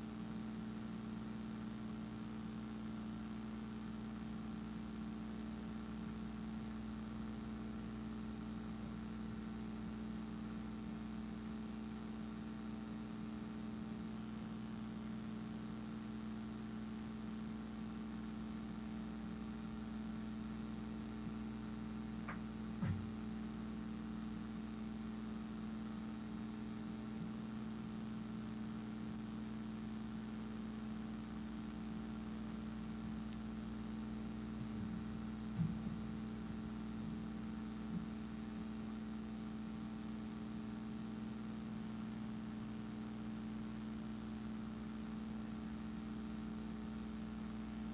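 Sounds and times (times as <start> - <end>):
low electrical hum: 0.0 - 47.9.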